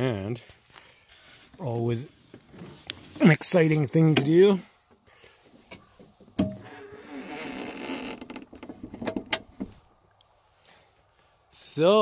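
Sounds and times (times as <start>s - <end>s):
bonnet creaking: 6.4s - 9.8s.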